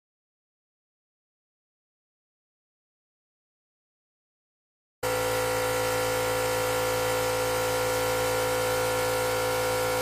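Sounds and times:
air compressor humming: 5.0s - 10.0s.

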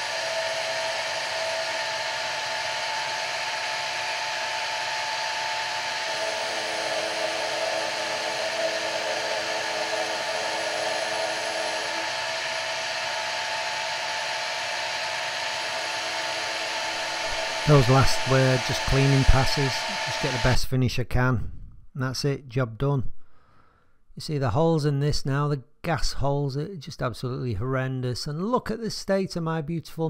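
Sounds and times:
lower machine tone: 0.0s - 20.6s
milling machine motor whine: 0.0s - 20.6s.

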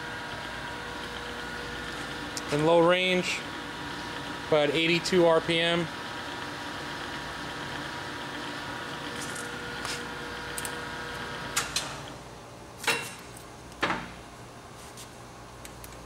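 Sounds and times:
lathe gear hum with faint whine: 0.0s - 12.4s.

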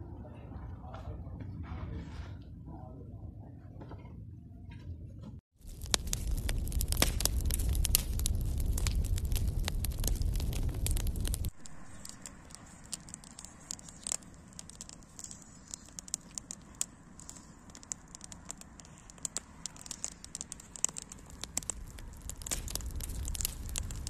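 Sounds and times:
wood fire crackling: 5.5s - 24.0s.

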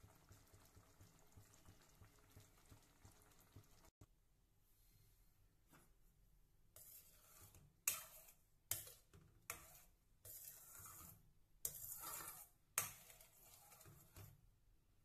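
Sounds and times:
spoon stirring thick food: 6.8s - 14.4s.

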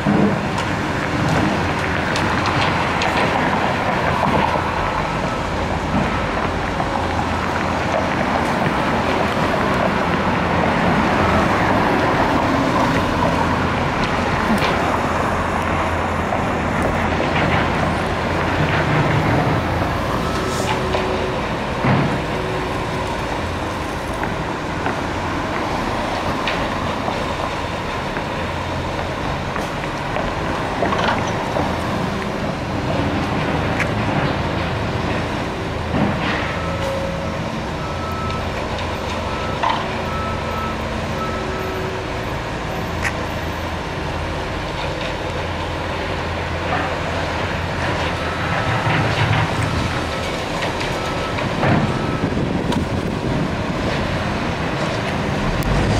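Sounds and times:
street traffic: 0.0s - 55.9s
construction clanks: 46.6s - 55.9s.

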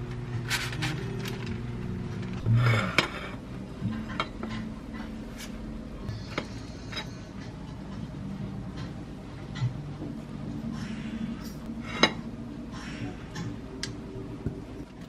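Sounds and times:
low steady hum: 0.0s - 15.0s
utensils clinking on dishes: 2.5s - 5.5s.

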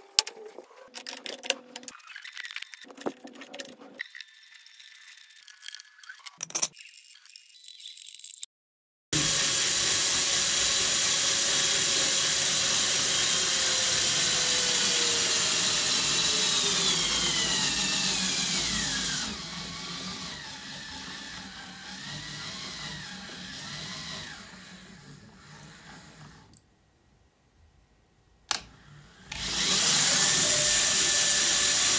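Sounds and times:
gearbox motor whining: 9.2s - 26.6s, 28.8s - 31.9s.

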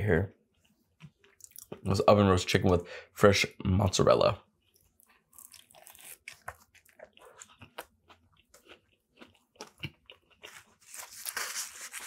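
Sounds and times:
person chewing sandwich: 4.5s - 12.0s
paper wrapper rustling: 10.5s - 12.0s.

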